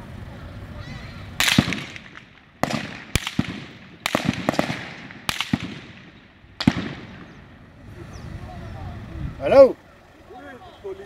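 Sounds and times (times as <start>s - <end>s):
distant gunshots echoing: 1.4s - 7.7s.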